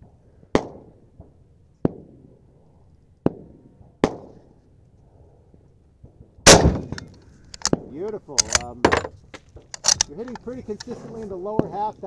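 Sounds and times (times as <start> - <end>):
distant gunshots: 6.5 - 7.0.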